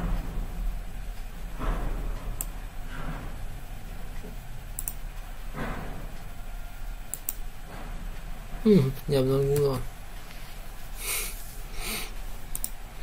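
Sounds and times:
low steady hum: 0:00.0 - 0:13.0
computer mouse clicking: 0:04.8 - 0:05.0, 0:07.1 - 0:07.4, 0:12.5 - 0:12.8.

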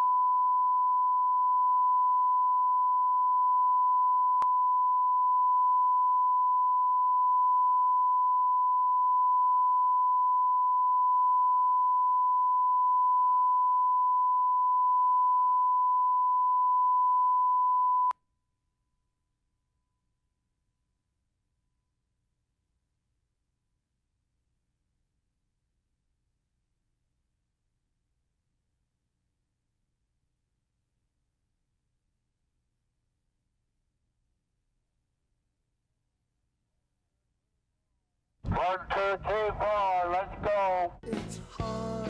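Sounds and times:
steady sine tone: 0:00.0 - 0:18.2.

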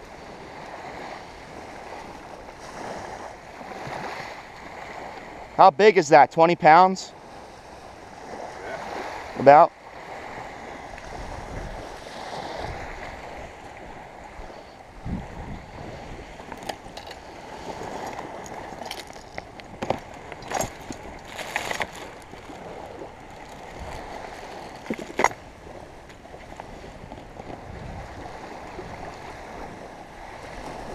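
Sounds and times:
small waves lapping on shore: 0:00.0 - 0:30.9.

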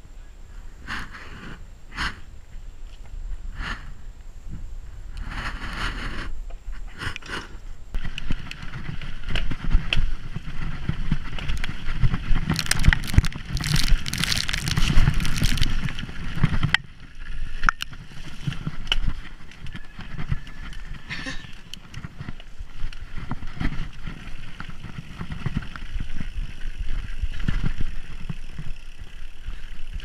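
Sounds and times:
wind rumbling on microphone: 0:00.0 - 0:30.0
tyre noise on dirt: 0:00.8 - 0:30.0
bike rattling over bumps: 0:06.8 - 0:30.0.

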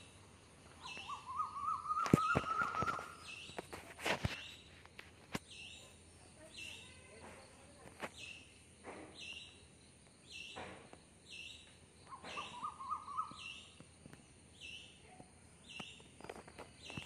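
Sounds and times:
bird warbling call: 0:00.8 - 0:03.5, 0:12.1 - 0:13.8.

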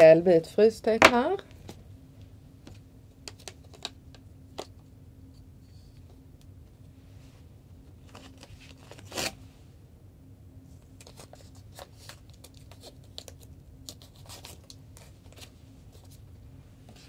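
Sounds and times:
tape crackling and clicking: 0:02.6 - 0:04.8, 0:10.8 - 0:16.1
tape tearing: 0:08.1 - 0:09.4, 0:11.0 - 0:15.5.

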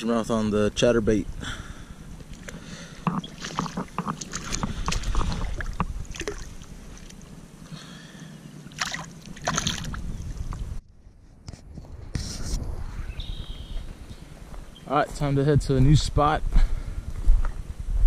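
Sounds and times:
water splashing and sloshing: 0:02.0 - 0:07.9, 0:08.5 - 0:10.8.

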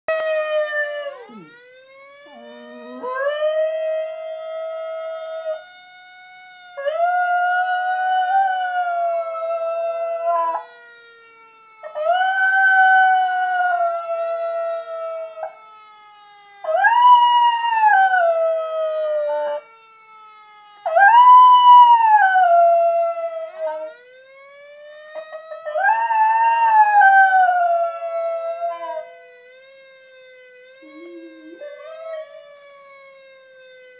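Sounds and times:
fire siren wailing: 0:00.1 - 0:33.9
dog howling: 0:02.3 - 0:03.6, 0:30.8 - 0:32.4.

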